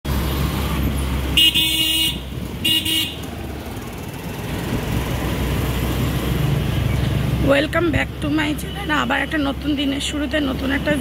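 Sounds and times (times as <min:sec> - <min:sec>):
street traffic: 0:00.0 - 0:11.0
motorbike engine humming: 0:00.1 - 0:11.0
vehicle horn honking: 0:01.4 - 0:03.2.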